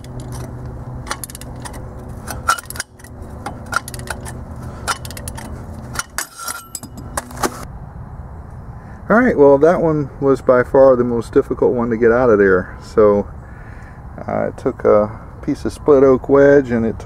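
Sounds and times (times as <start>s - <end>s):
metallic clicks of hand tools: 0.0s - 7.3s.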